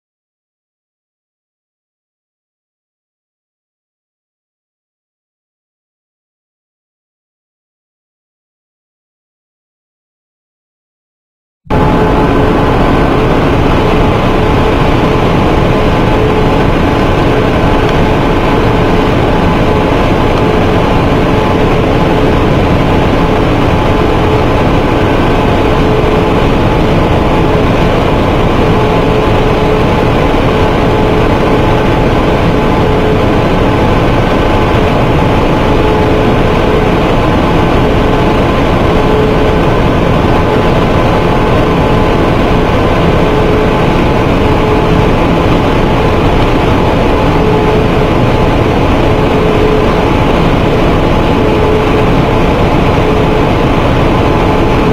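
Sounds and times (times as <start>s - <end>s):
printing press running with whine: 11.7s - 54.9s.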